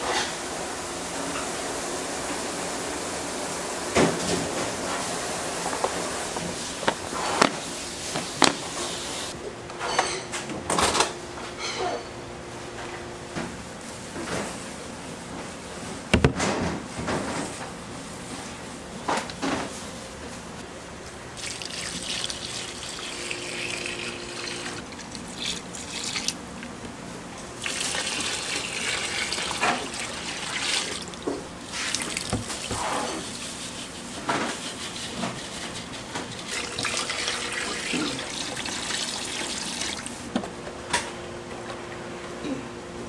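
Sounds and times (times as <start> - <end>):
handling knocks and clatter: 5.6 - 8.9
tap water running into sink: 21.4 - 26.4, 27.6 - 32.9, 36.4 - 40.3.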